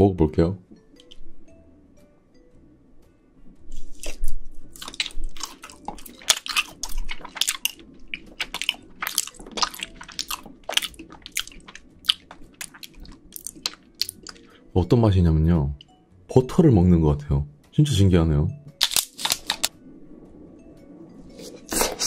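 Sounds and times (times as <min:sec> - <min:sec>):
biting and chewing: 0:03.7 - 0:14.5, 0:18.8 - 0:19.7
wet mouth clicks and smacks: 0:04.8 - 0:14.5.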